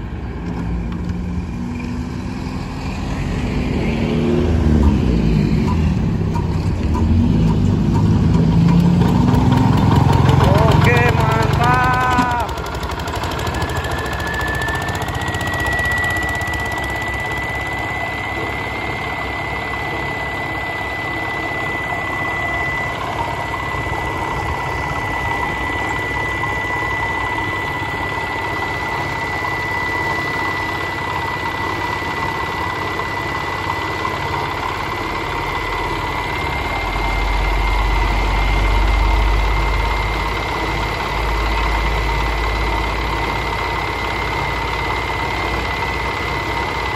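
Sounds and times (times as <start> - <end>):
diesel engine running: 0.0 - 46.9
thin high whine: 10.2 - 46.9.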